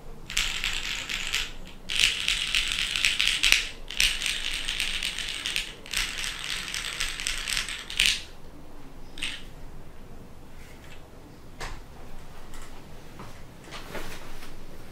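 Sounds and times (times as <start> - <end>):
fast typing on mechanical keyboard: 0.3 - 8.3.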